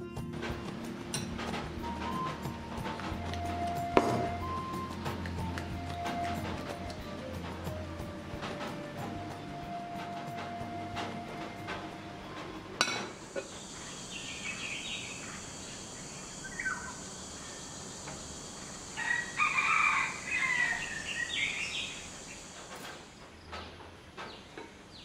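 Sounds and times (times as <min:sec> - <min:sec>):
background music: 0:00.0 - 0:13.2
steady high hiss: 0:00.0 - 0:25.0
birds calling: 0:00.3 - 0:25.0.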